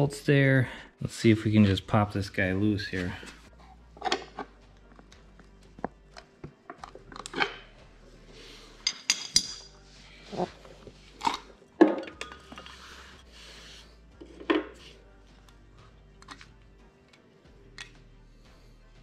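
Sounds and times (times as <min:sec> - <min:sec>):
metal clanks and clinks: 0:04.0 - 0:04.5, 0:08.8 - 0:09.7, 0:11.2 - 0:12.8.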